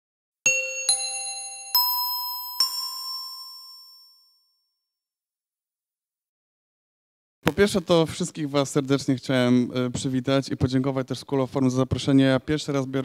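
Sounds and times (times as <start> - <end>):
bell-like chime notes: 0.5 - 4.9.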